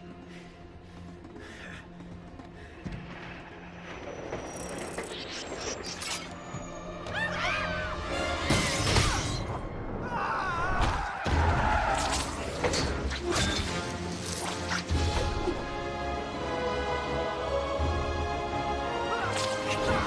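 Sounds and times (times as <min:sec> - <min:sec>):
orchestral score: 0:06.3 - 0:20.0
people screaming: 0:07.1 - 0:09.2, 0:10.0 - 0:12.5.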